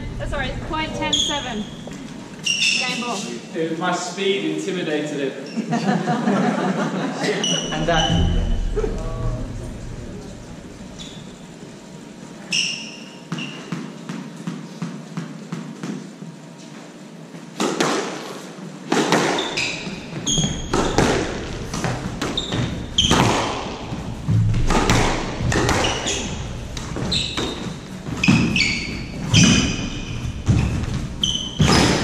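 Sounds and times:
shoes squeaking on hardwood: 0:00.7 - 0:03.4, 0:19.1 - 0:32.0
squash ball cracking off walls: 0:18.9 - 0:19.8, 0:20.4 - 0:28.6.

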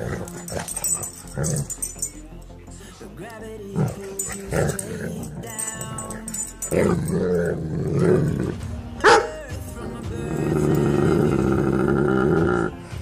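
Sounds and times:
dog howling: 0:03.8 - 0:09.4
dog barking: 0:09.0 - 0:09.4.

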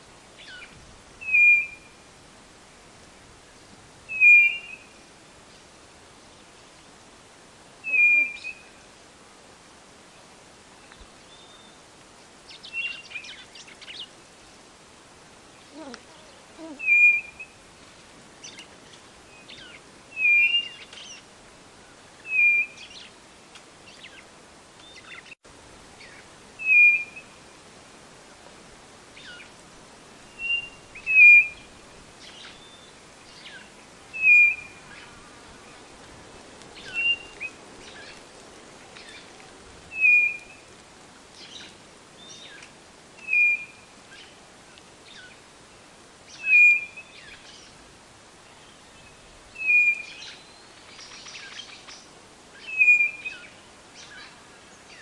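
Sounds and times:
faint calls of other birds: 0:00.4 - 0:02.0, 0:07.8 - 0:08.9, 0:15.6 - 0:23.2, 0:30.2 - 0:45.4, 0:48.4 - 0:55.0.

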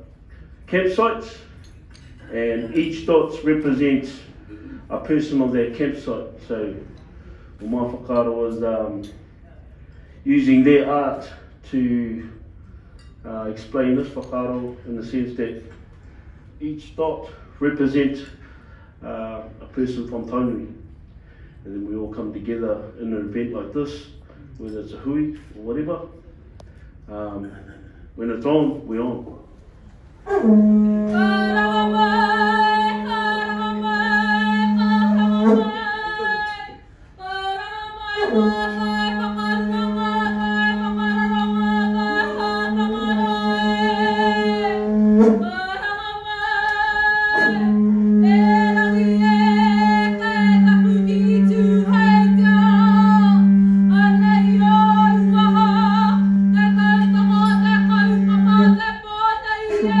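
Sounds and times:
group singing in unison: 0:31.1 - 0:36.7, 0:38.2 - 0:45.4.

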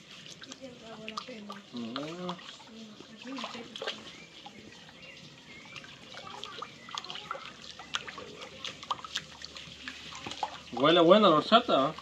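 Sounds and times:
hand sloshing thick liquid: 0:00.0 - 0:12.0.

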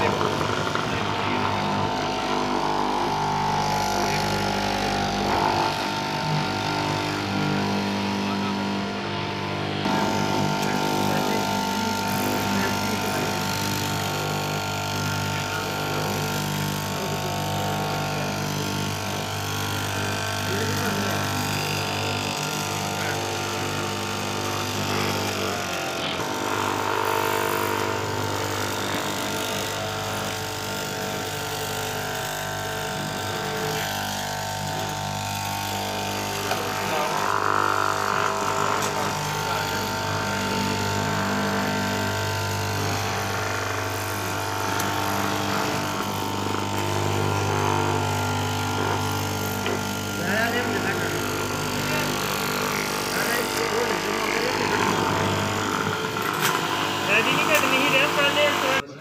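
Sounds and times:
electric cloth-cutting machine: 0:00.0 - 0:59.0.

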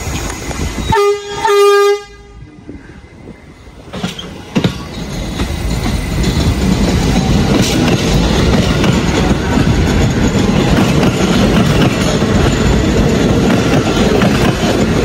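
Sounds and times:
train pulling out: 0:00.0 - 0:15.0
subway train horn: 0:00.8 - 0:02.8
wheels clacking over rail joints: 0:03.9 - 0:15.0.

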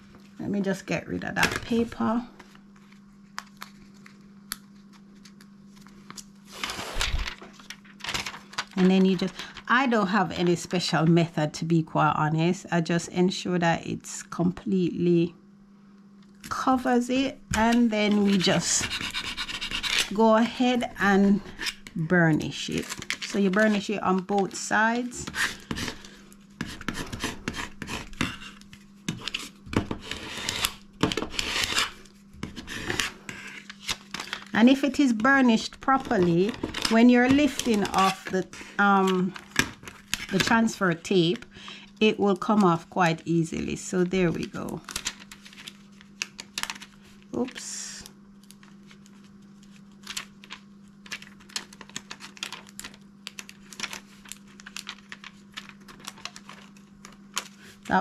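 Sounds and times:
tool scratching over vinyl: 0:17.7 - 0:20.2, 0:26.6 - 0:33.7
tape peeling crackles: 0:44.6 - 0:57.7.

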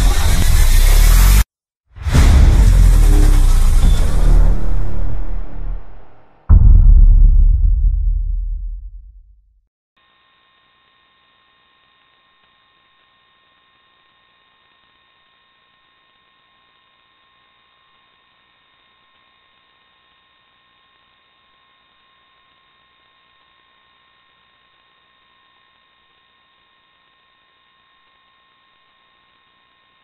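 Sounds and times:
thin whine tones: 0:02.2 - 0:06.8.

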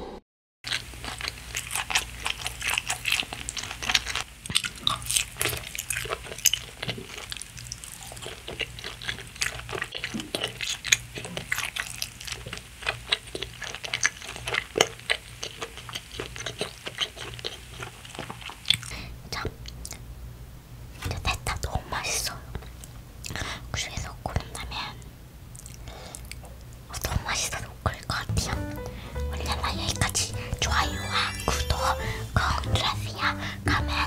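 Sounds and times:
person chewing food: 0:00.7 - 0:19.0, 0:25.5 - 0:26.6.

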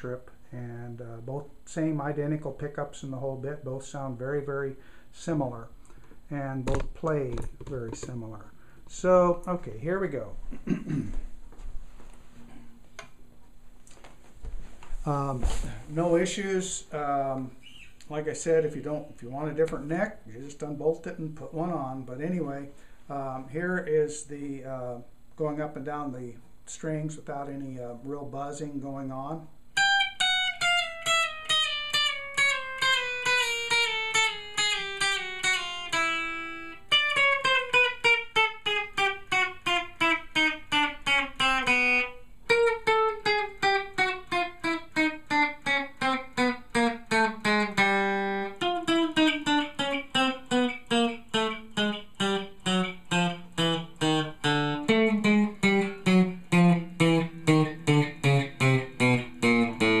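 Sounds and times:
clean electric guitar notes: 0:29.8 - 1:00.0.

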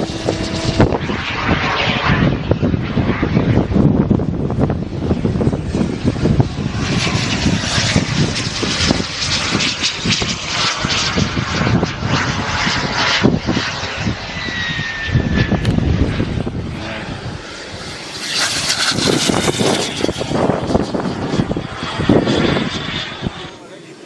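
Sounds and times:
wind rumble on microphone: 0:00.0 - 0:23.6
model jet turbine hissing: 0:13.2 - 0:24.0.

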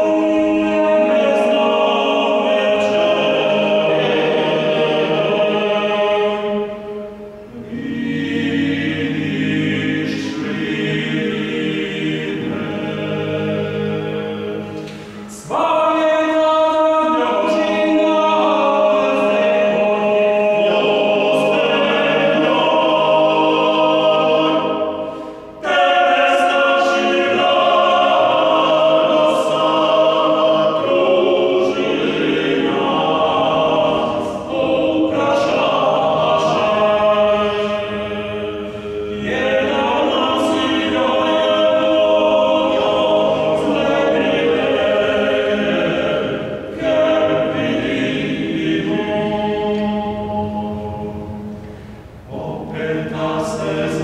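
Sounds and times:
male vocal quartet singing: 0:00.0 - 0:54.0.

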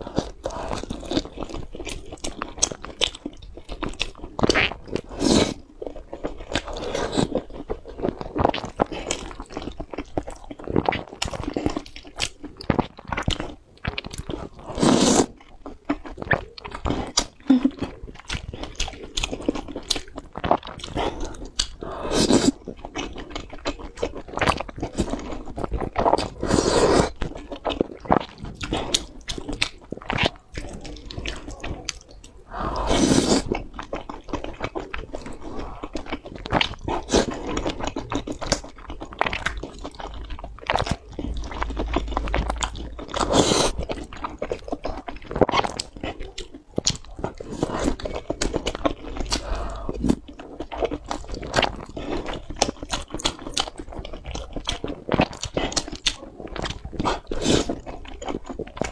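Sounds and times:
person chewing: 0:00.0 - 0:58.9
slurping noodles: 0:04.4 - 0:05.7, 0:06.5 - 0:07.5, 0:14.2 - 0:15.4, 0:16.3 - 0:40.1, 0:40.7 - 0:53.0, 0:54.6 - 0:57.9.

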